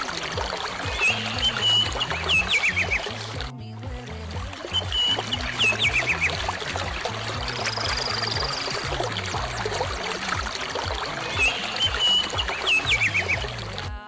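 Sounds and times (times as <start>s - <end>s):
repeating low bass line: 0.0s - 14.0s
high chirping notes: 0.5s - 3.3s, 4.6s - 10.0s, 11.1s - 13.6s.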